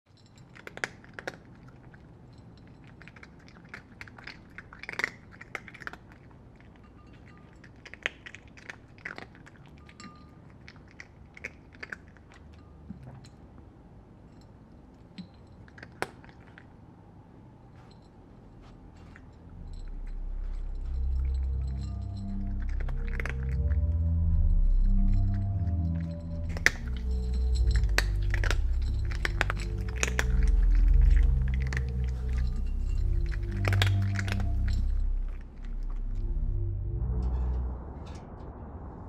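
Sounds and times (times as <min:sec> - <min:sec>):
faint low hum: 0:00.1 - 0:39.0
crunchy chewing: 0:26.5 - 0:36.3.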